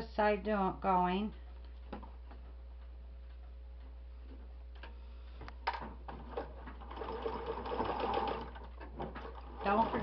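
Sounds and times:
sewing machine stitching: 6.2s - 10.0s.

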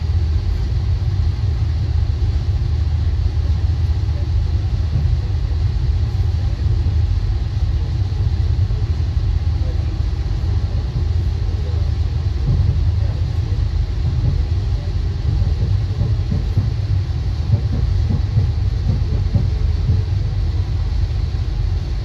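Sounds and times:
train rumbling on track: 0.0s - 22.0s.

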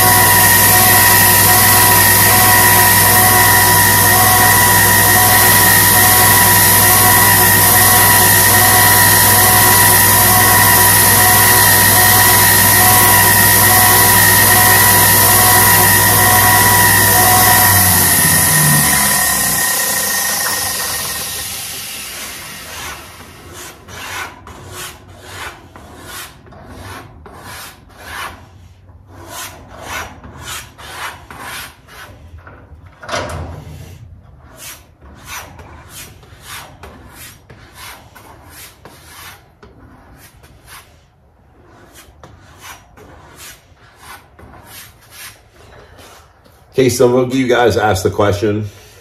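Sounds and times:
belt sander spinning down: 0.0s - 23.2s.

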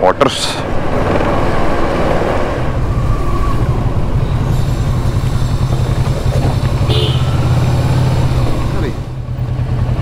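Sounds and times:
motorcycle engine running: 3.7s - 10.0s.

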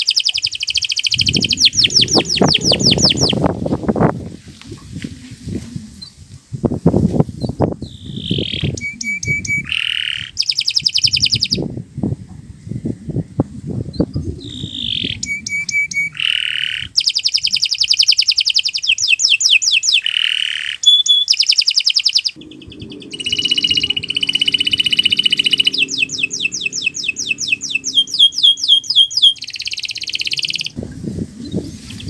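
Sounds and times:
canary singing trills: 0.0s - 3.5s, 7.4s - 11.6s, 13.9s - 30.8s.

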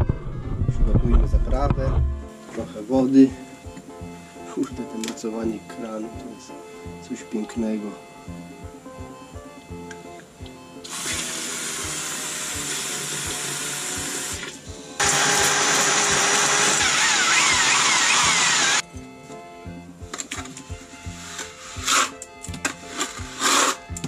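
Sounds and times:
electric drill mixing mortar: 10.8s - 18.8s, 21.2s - 24.0s.

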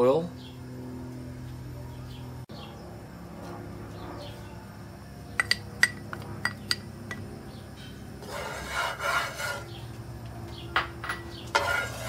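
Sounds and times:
wooden spatula scraping a skillet: 8.2s - 9.8s, 11.5s - 12.0s.

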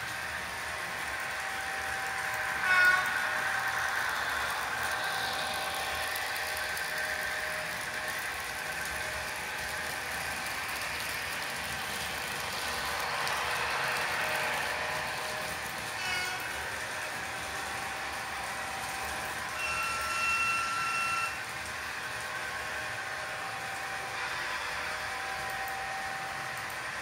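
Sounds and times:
model trains running on track: 0.0s - 27.0s.

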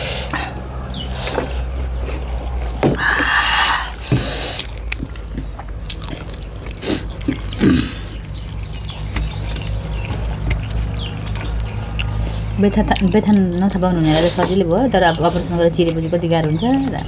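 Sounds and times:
wet chewing and mouth smacks: 3.9s - 17.0s.

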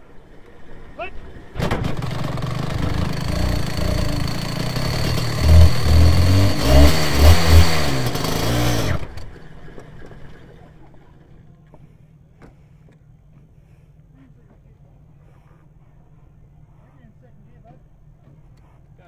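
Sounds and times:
two-stroke engine revving: 0.0s - 11.4s.

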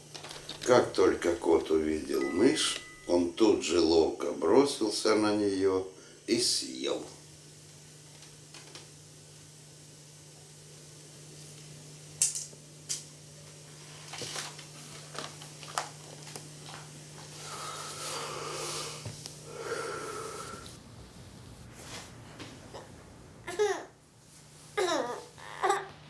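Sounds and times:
man breathing with wheeze: 17.3s - 20.8s.

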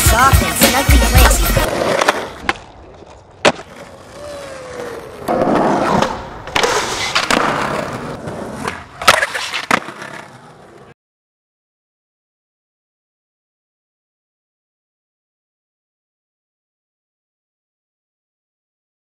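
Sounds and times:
skateboard wheels rolling on concrete: 0.1s - 11.0s
skateboard clacking on ground: 1.2s - 11.0s.

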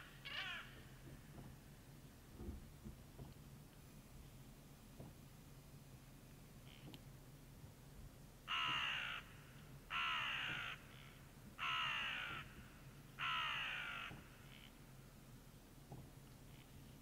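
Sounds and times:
ravens croaking: 0.0s - 1.2s, 8.5s - 14.8s.

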